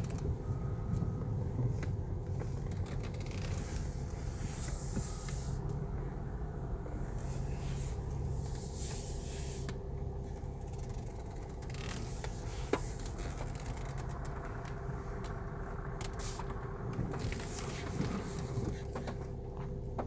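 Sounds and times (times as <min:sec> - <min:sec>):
car engine and road hum: 0:00.0 - 0:20.0
light clicks and rustles: 0:09.6 - 0:20.0.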